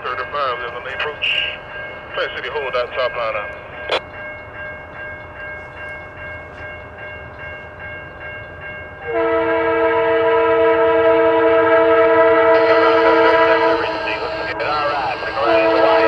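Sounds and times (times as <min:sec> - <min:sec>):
crossing bell ringing: 0:00.0 - 0:16.0
train running noise: 0:00.0 - 0:16.0
locomotive air horn blast: 0:09.0 - 0:16.0.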